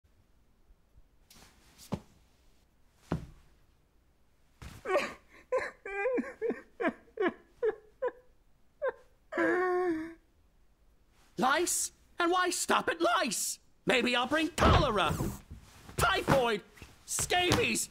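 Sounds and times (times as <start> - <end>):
soft thumps: 3.0 - 3.5
man sobbing: 4.8 - 10.3.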